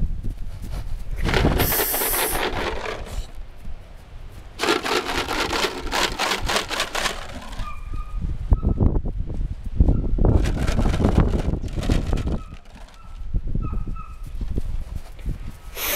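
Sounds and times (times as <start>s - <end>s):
brief high hiss: 1.6s - 2.4s.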